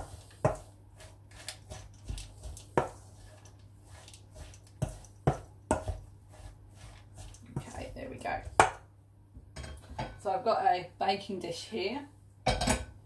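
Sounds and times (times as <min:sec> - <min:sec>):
spoon scraping in mixing bowl: 0:00.0 - 0:08.7.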